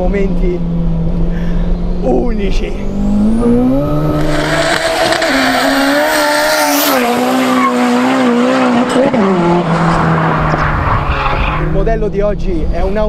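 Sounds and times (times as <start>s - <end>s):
car engine revving hard: 0.6s - 11.8s
tyre squeal: 4.2s - 11.7s.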